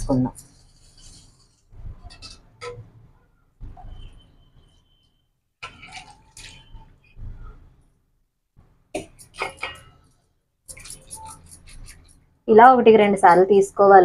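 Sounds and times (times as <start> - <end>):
metal vessels clinking: 9.0 - 10.1.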